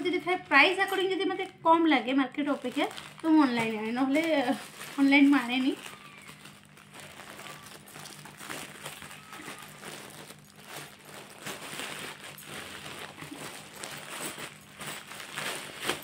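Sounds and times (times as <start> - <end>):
plastic bag rustling and crinkling: 0.0 - 16.0.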